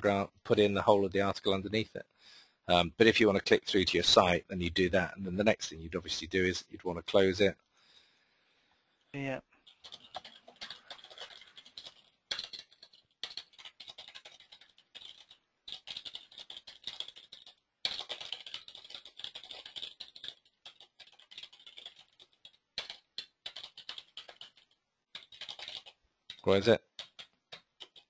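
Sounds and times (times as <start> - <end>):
typing on a keyboard: 9.6 - 28.0.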